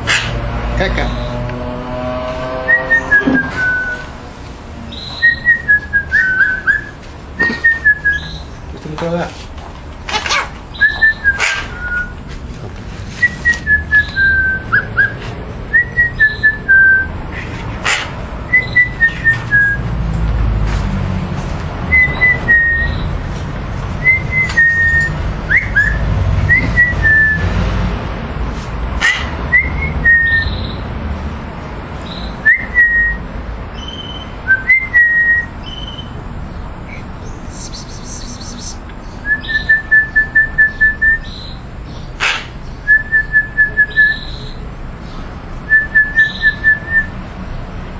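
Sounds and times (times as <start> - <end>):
magpie whistling: 2.7 - 4.1, 4.9 - 8.5, 10.7 - 12.2, 13.2 - 15.2, 15.8 - 17.1, 18.5 - 19.9, 21.9 - 23.1, 24.0 - 27.4, 33.8 - 36.2, 36.9 - 41.6, 42.2 - 44.6, 45.7 - 47.1.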